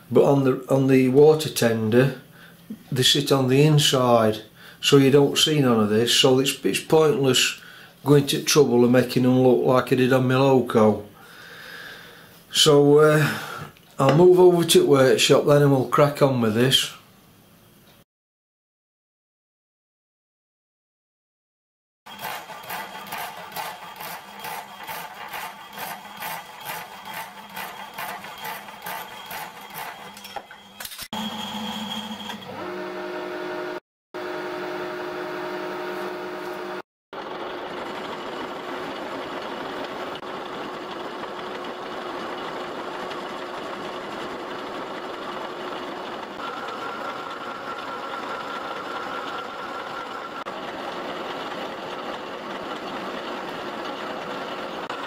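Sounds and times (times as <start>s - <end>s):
power hacksaw cutting steel: 22.1s - 32.4s
thin whine from lathe cut: 22.1s - 39.1s, 46.3s - 51.6s
metal lathe running: 22.1s - 55.0s.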